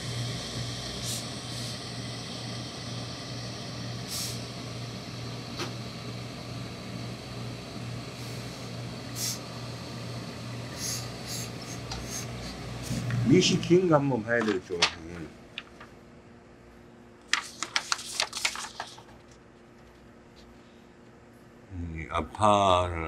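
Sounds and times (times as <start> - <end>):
steam iron hissing: 0.0 - 13.1
steady low hum: 0.0 - 23.0.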